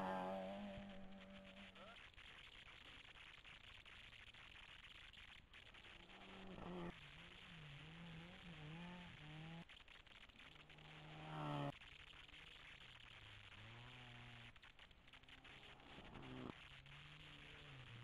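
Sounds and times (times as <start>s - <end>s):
distant rally car engines revving: 0.0s - 2.0s, 6.0s - 11.8s, 13.0s - 18.0s.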